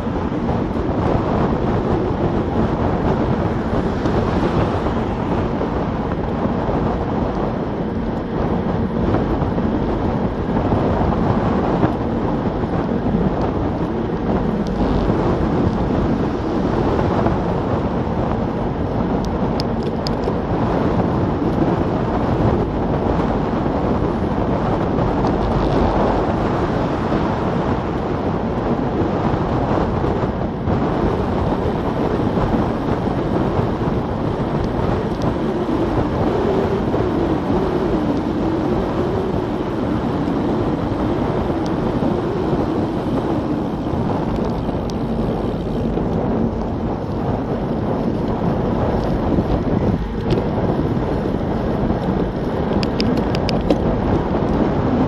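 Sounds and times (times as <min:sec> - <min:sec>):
wind buffeting microphone: 0:00.0 - 0:55.0.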